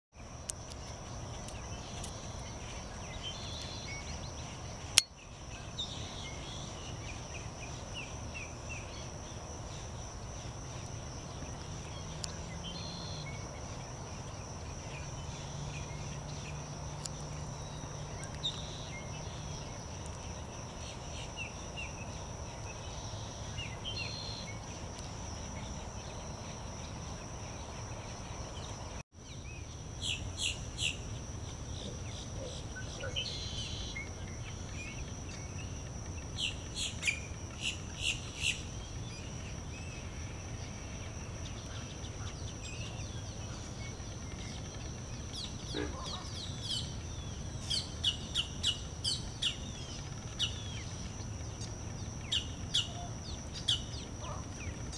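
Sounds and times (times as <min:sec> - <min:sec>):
high-pitched insect drone: 0:00.3 - 0:54.9
chirping bird calls: 0:41.8 - 0:47.0.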